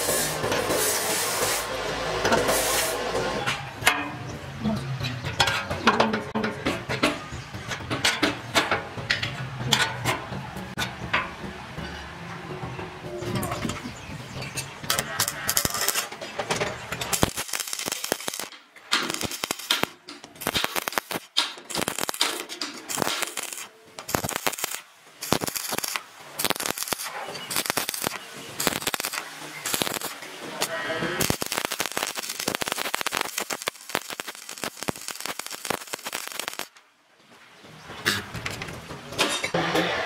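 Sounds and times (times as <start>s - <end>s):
arc welder crackling: 0.0s - 3.5s, 14.8s - 36.8s.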